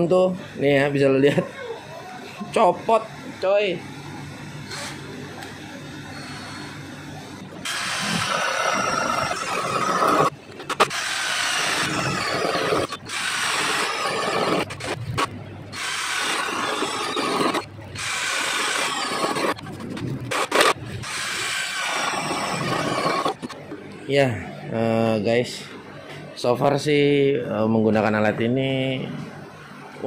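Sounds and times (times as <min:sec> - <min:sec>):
cordless drill boring into wood: 0:07.6 - 0:14.8, 0:15.7 - 0:19.6, 0:20.4 - 0:23.5.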